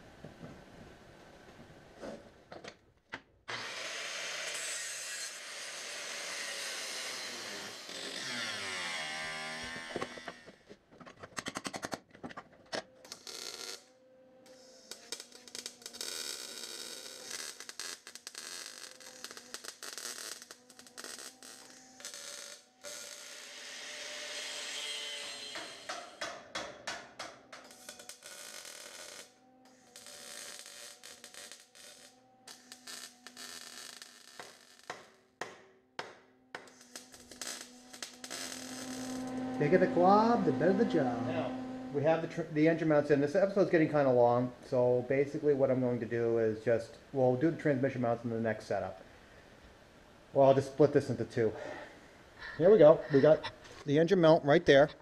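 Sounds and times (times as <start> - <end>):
power tool grinding metal: 3.5 - 10.5, 14.4 - 26.2, 36.6 - 43.1.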